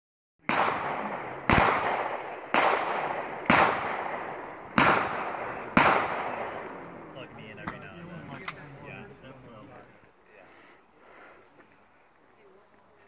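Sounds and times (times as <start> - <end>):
gunshots with echo: 0.4 - 7.2.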